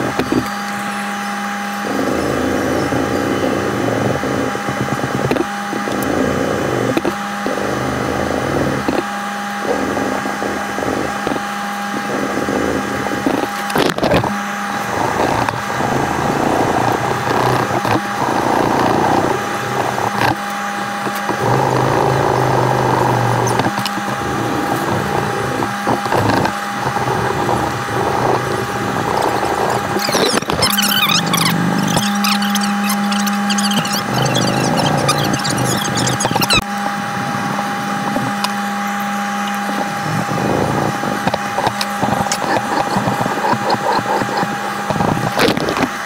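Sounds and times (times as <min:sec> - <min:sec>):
steady background hum: 0:00.0 - 0:46.0
sandpaper rasping on knife: 0:29.1 - 0:36.6, 0:41.6 - 0:44.9.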